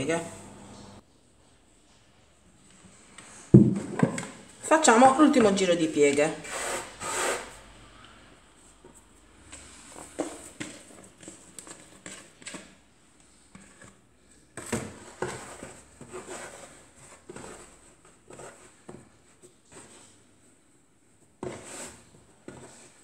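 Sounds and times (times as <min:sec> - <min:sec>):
plastic bowl knocks: 0:03.6 - 0:04.4.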